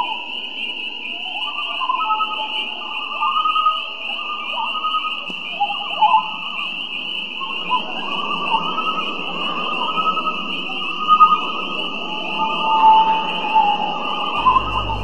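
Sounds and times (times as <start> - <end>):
loons calling: 1.1 - 15.0
high-pitched chorus: 7.5 - 15.0.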